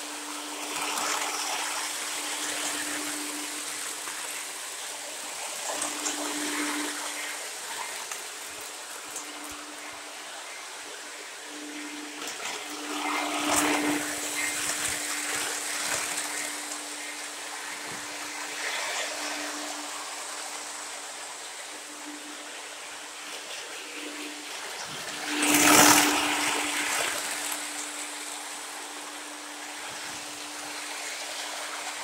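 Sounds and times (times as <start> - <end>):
model train wheels rushing on rails: 0.0 - 32.0
steady hum: 0.0 - 32.0.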